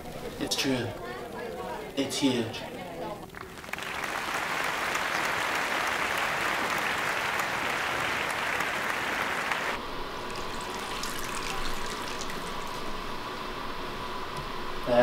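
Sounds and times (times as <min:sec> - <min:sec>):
audience applause: 0:03.0 - 0:12.8
urine stream into toilet: 0:10.2 - 0:13.2.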